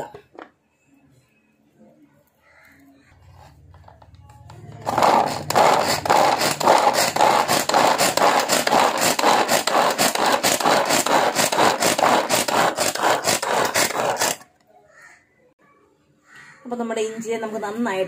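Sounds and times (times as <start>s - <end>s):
food chopper clattering: 4.7s - 14.5s.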